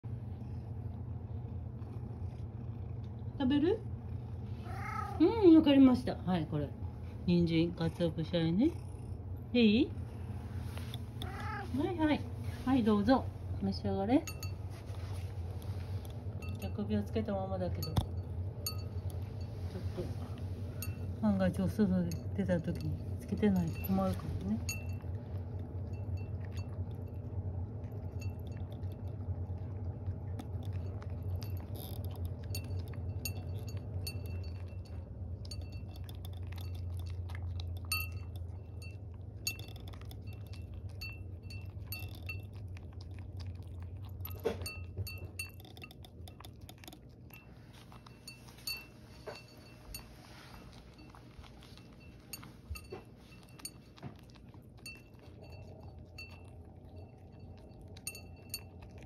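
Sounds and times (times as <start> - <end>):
steady low hum: 0.0 - 59.0
cat chewing: 0.1 - 5.2, 6.7 - 59.0
collar clinking against ceramic bowl: 12.9 - 59.0.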